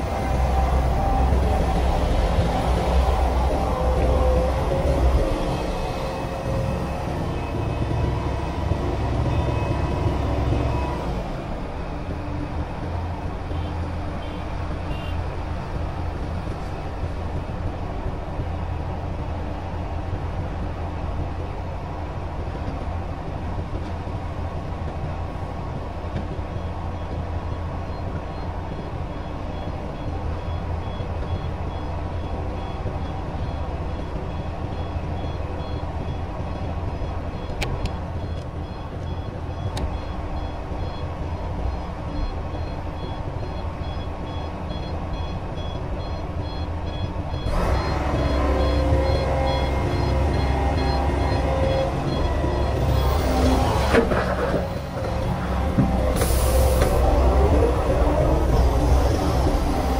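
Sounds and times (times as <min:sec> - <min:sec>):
truck reversing alarm beeping: 0:00.0 - 0:12.2, 0:26.6 - 0:59.9
excavator diesel engine running: 0:00.0 - 0:59.9.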